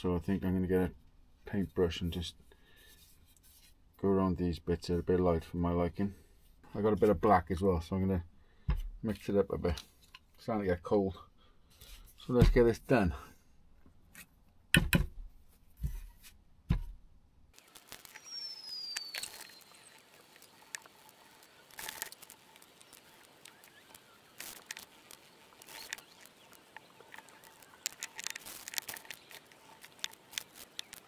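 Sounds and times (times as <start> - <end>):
sharp knocks: 14.7 - 15.2.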